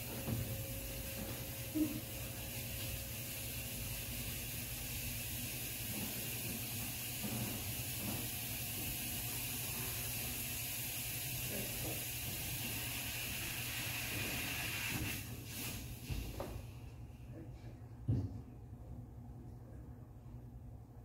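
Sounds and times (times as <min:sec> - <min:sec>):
fog machine hissing: 0:00.0 - 0:16.5.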